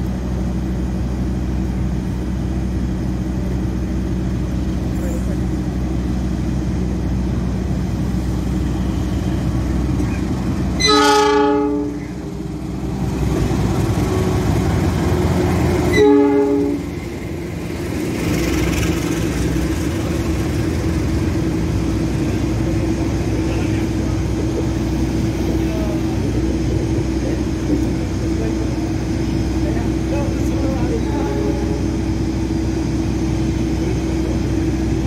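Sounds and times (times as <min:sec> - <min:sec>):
locomotive engine rumble: 0:00.0 - 0:35.0
locomotive horn blasts: 0:10.8 - 0:12.2, 0:15.9 - 0:16.9.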